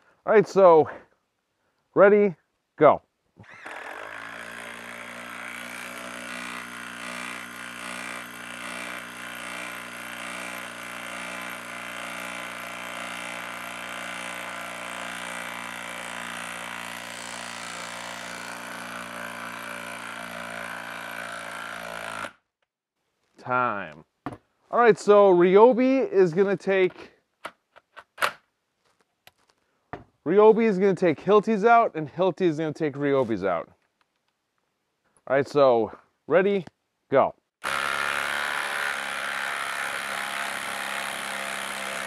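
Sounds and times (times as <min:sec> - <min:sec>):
impact driver hammering screw into wood: 0:03.4 - 0:22.4, 0:37.6 - 0:42.0.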